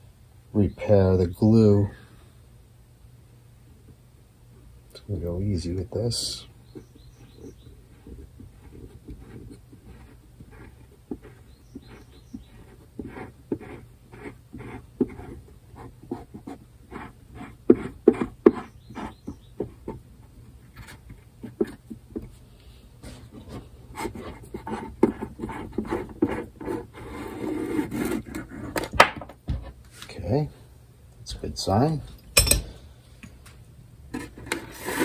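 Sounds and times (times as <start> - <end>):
wooden caul scraping: 23.0 - 29.0, 34.1 - 35.0.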